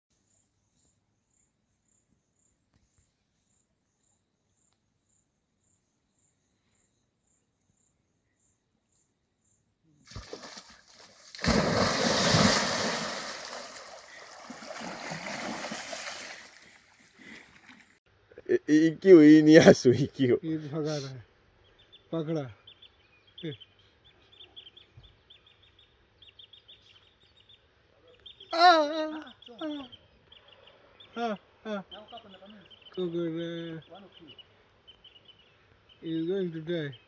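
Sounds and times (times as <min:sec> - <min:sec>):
animals splashing in river: 0:10.0 - 0:18.0.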